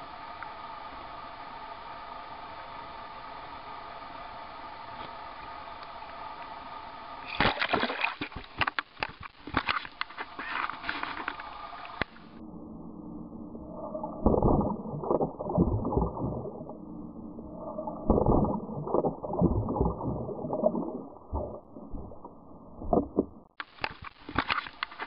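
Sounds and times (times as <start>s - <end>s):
water splashing: 7.2s - 12.3s
underwater churning water: 10.4s - 23.6s.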